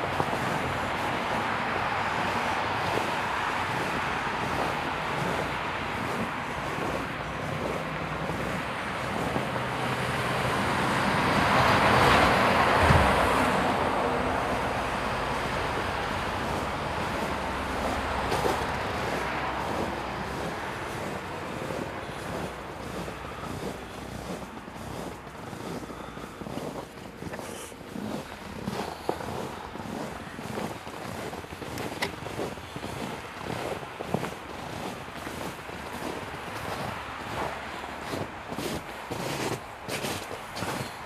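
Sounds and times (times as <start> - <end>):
background traffic noise: 0.0 - 41.0
vehicle passing: 0.0 - 41.0.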